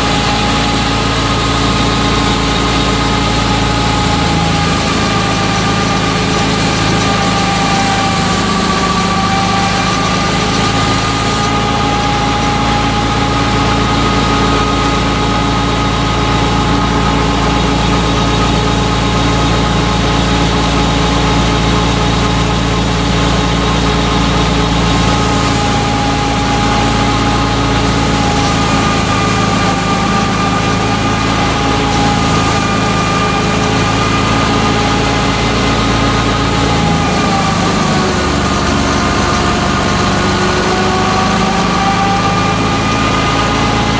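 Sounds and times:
steady high whine: 0.0 - 43.9
thresher drone: 0.0 - 43.9.

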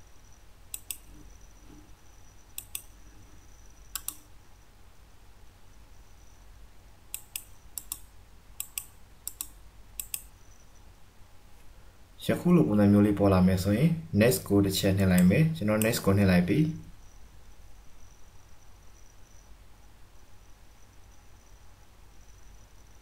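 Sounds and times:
computer mouse clicking: 0.7 - 1.2, 2.5 - 3.0, 3.9 - 4.3, 7.1 - 10.3.

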